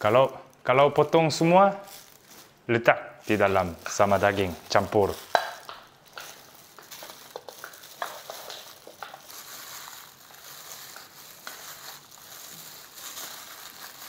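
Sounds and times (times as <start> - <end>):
soft squelches of mixing meat: 0.0 - 14.0.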